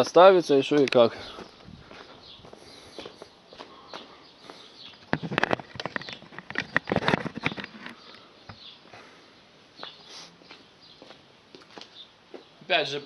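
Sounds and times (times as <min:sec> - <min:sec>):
footsteps on dirt: 0:00.8 - 0:07.8, 0:09.8 - 0:12.5
camera handling knocks and scrapes: 0:04.9 - 0:08.6.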